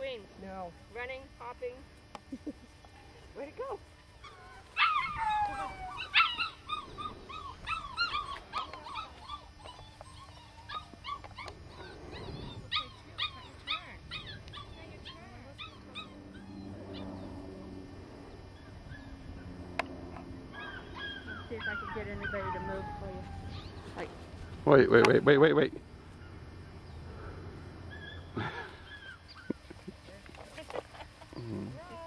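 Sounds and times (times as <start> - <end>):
puppies yipping and whimpering: 4.2 - 17.4, 18.5 - 19.6, 20.5 - 24.6, 26.0 - 31.9.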